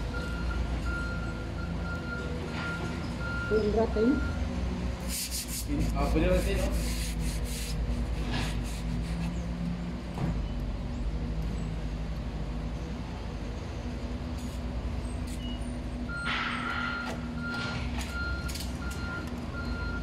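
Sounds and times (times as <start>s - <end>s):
diesel engine running: 0.0s - 5.1s.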